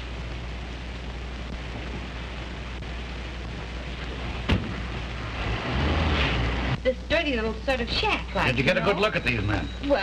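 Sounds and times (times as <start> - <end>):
rain and storm noise: 0.0 - 7.4.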